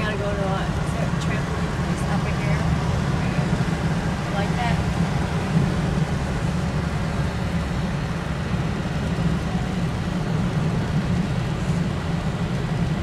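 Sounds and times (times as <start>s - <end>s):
car cabin road noise: 0.0s - 13.0s.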